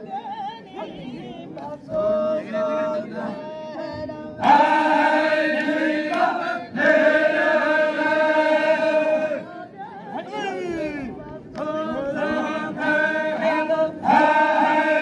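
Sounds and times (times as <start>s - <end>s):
chorus of many voices chanting: 0.0s - 15.0s.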